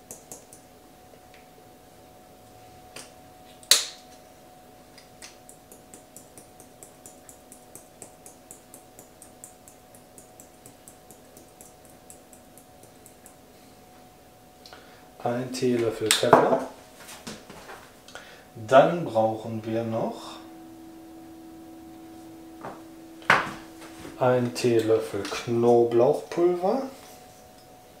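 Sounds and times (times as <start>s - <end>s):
pepper mill grinding ticks: 0.0s - 0.7s, 5.0s - 13.4s.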